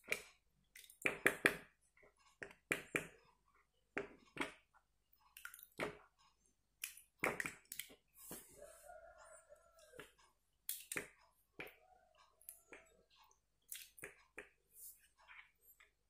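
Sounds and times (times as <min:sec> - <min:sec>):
spoon squelching in slime: 0:06.8 - 0:08.8, 0:09.5 - 0:11.8, 0:12.4 - 0:16.0.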